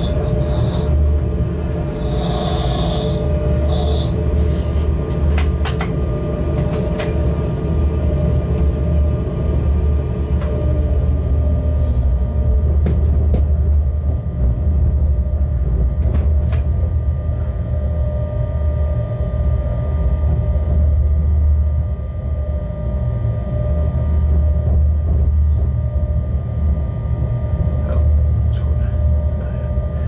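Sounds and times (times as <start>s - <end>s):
constant whine: 0.0s - 30.0s
locomotive low rumble: 0.0s - 30.0s.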